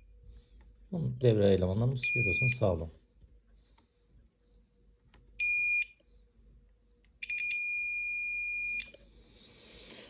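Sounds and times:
multimeter continuity beeps: 1.9 - 2.8, 5.4 - 6.1, 7.2 - 9.0.

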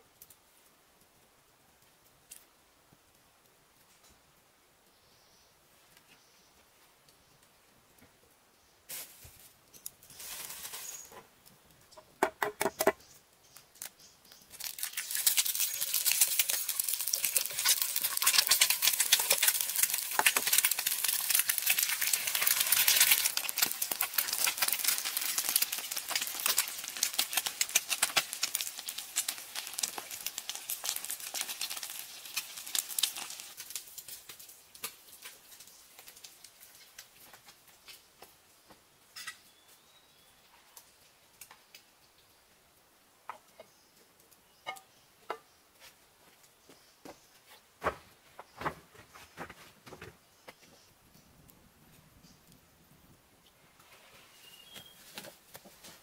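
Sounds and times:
eggs sizzling in frying pan: 14.4 - 38.1.

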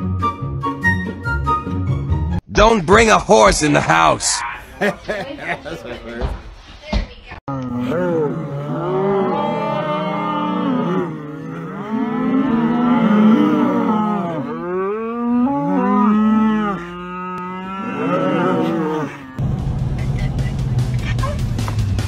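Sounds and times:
cattle mooing: 7.5 - 19.4.

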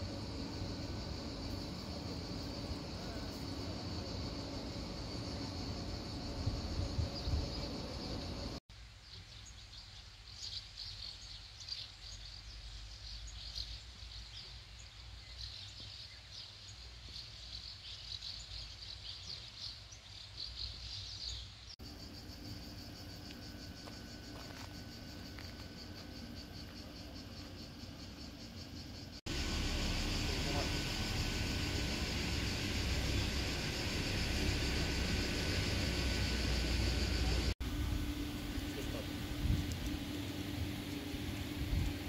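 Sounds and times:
insects chirping: 0.0 - 8.6, 9.4 - 42.0
low rumble: 27.6 - 42.0.

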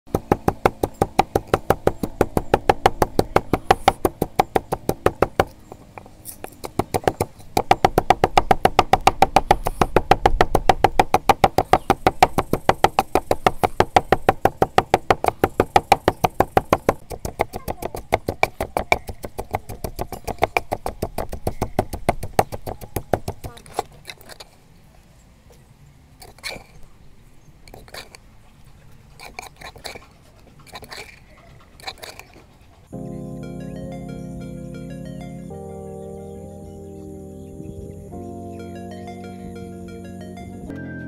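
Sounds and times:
background music with clicking beat: 33.0 - 41.0.

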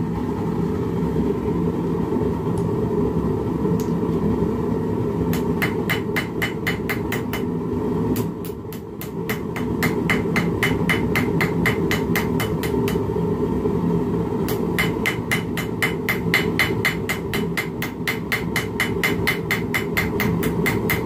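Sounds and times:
hammer striking steel: 5.4 - 7.5, 8.2 - 13.0, 14.5 - 21.0.

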